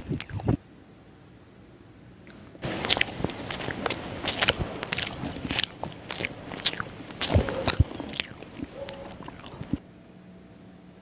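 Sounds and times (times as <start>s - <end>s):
close chewing: 0.0s - 0.6s, 2.3s - 9.8s
wet mouth clicks and smacks: 0.1s - 0.6s, 2.3s - 9.8s.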